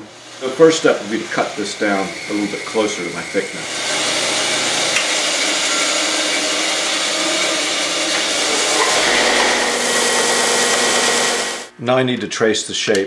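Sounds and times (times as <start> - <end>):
belt sander running: 0.0 - 11.7
low hum: 8.5 - 11.7.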